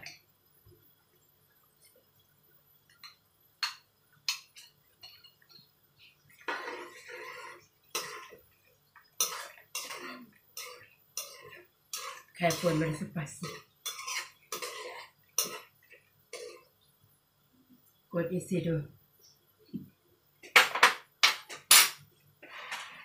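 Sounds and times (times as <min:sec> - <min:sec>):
spoon scraping a metal pan: 0:06.5 - 0:08.3.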